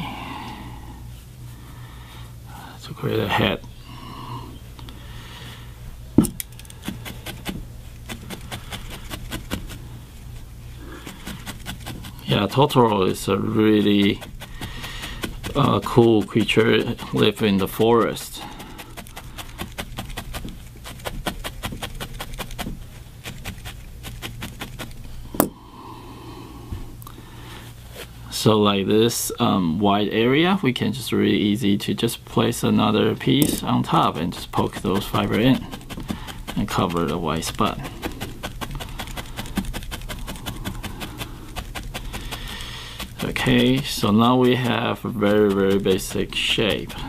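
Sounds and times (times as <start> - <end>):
felting needle tapping: 11.0 - 25.6, 33.4 - 47.0.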